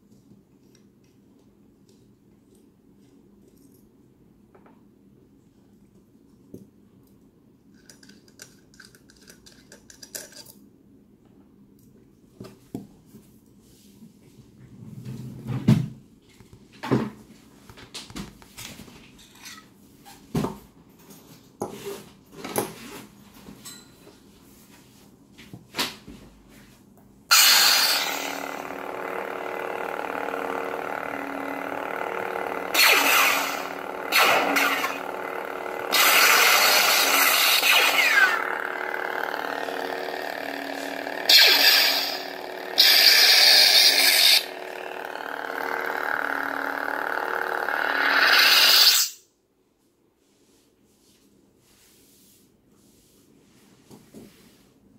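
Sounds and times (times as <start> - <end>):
metal parts clicking and knocking: 7.8 - 10.6
steady electric hum: 27.2 - 47.6
lightsaber ignition burst: 27.3 - 46.8.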